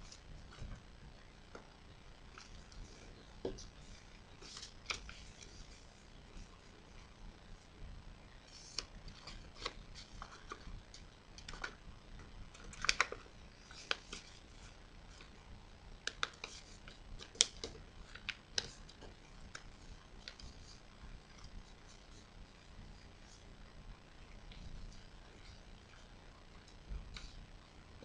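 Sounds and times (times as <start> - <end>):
paper crackling and rustling: 2.3 - 6.7, 8.5 - 11.8, 12.5 - 15.4, 16.0 - 23.4.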